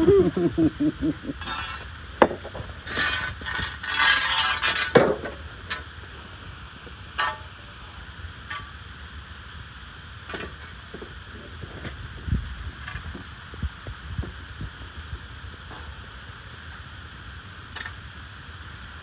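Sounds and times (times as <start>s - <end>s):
metal conduit scraping: 2.8s - 5.0s.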